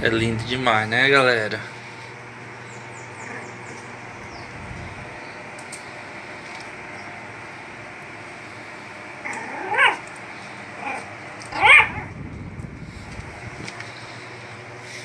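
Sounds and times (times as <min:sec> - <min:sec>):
puppy yipping barks: 0:09.4 - 0:10.0, 0:10.8 - 0:12.1.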